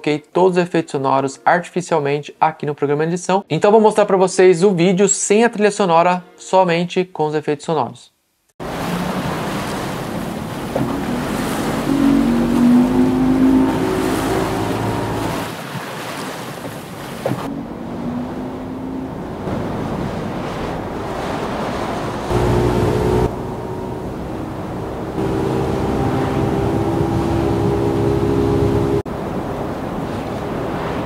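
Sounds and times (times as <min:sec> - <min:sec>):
boat motor low hum: 0:08.6 - 0:30.8
rushing lake water: 0:08.6 - 0:31.0
wind: 0:08.6 - 0:31.0.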